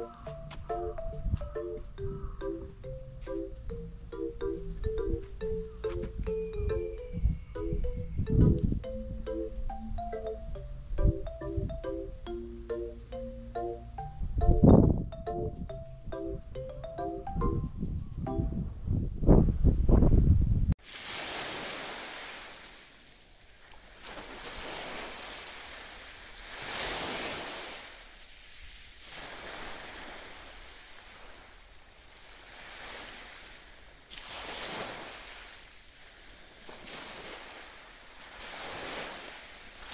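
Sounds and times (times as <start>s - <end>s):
sea waves washing in: 20.8s - 39.9s.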